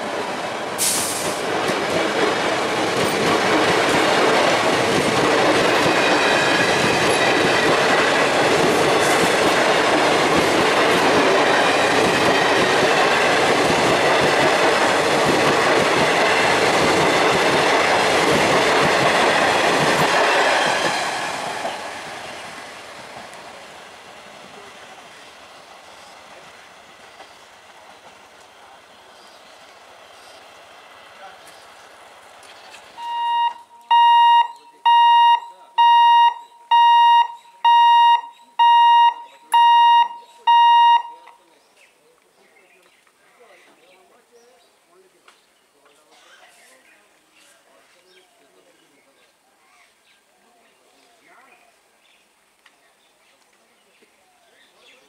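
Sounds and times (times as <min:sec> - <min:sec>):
train wheels clattering over rails: 0:00.0 - 0:24.7.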